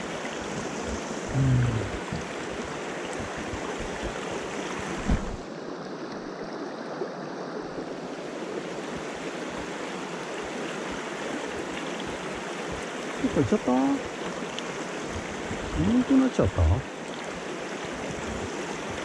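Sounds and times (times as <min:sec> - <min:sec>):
stream rushing over rocks: 0:00.0 - 0:19.0
thump: 0:05.0 - 0:05.4.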